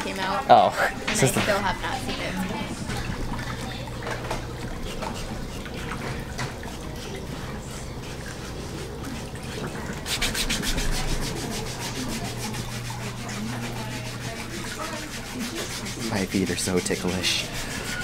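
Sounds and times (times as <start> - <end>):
low motor hum: 0.0 - 18.0
foot file rasping on skin: 4.7 - 6.0, 7.7 - 18.0.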